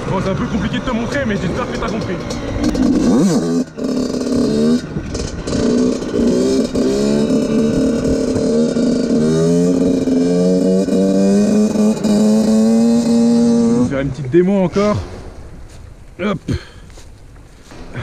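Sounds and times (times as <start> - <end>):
dirt bike engine revving: 0.0 - 15.5.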